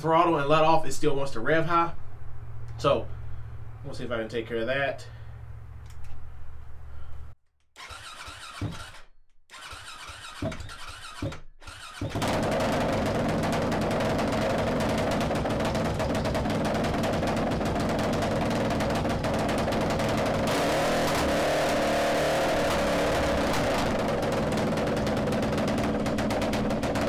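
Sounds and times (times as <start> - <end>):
motorcycle engine starting: 7.8 - 27.0.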